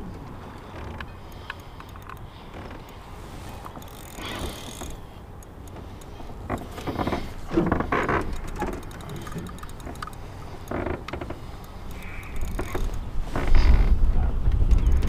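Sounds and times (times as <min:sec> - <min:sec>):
gear clattering on aluminum hull: 0:00.0 - 0:15.0
fishing reel ticking: 0:00.3 - 0:13.1.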